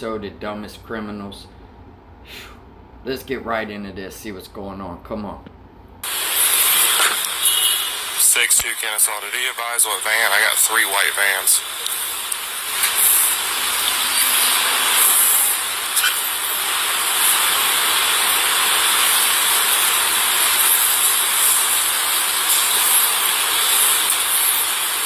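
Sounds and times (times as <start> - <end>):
steady microphone hiss: 0.0 - 25.0.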